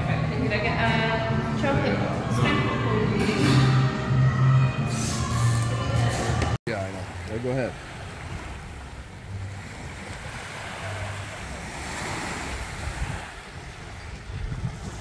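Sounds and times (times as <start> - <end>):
waves washing onto beach: 6.7 - 15.0
wind rumbling on microphone: 7.1 - 15.0.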